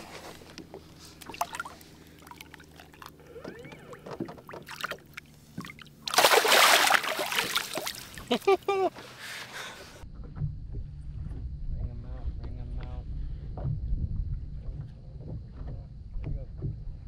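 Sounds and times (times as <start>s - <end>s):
water drips and sloshes: 1.0s - 8.4s
fish splashing water: 1.2s - 8.5s.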